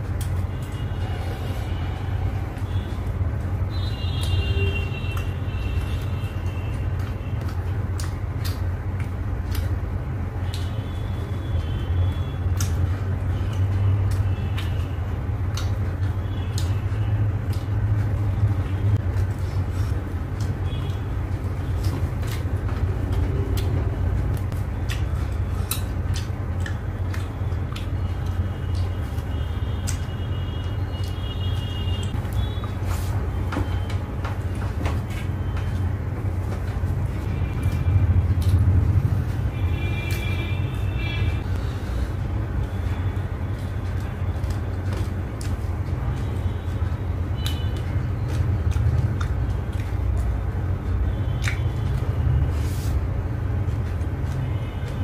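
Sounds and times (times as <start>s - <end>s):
chewing and biting meat: 12.0s - 30.1s, 47.4s - 50.7s.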